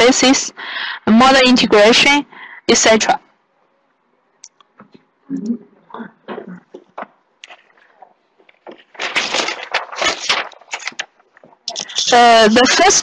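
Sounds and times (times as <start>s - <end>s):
person speaking: 4.4s - 13.0s
scratchy handling noise: 6.7s - 12.0s.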